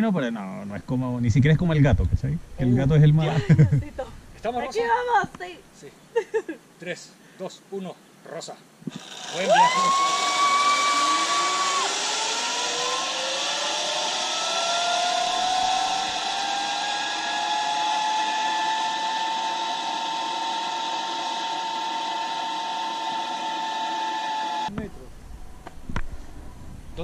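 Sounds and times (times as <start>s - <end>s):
zipline pulley whine: 8.9s - 24.7s.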